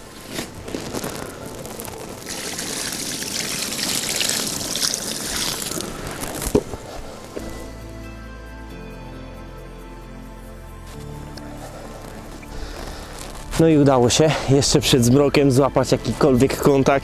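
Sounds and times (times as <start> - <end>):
water splashing and streaming: 0.3 - 7.4.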